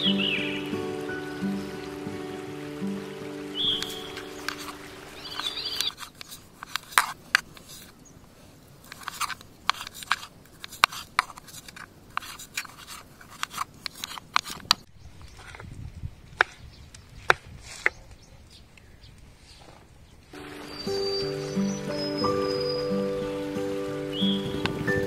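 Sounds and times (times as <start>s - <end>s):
steady musical tone: 20.4s - 25.0s.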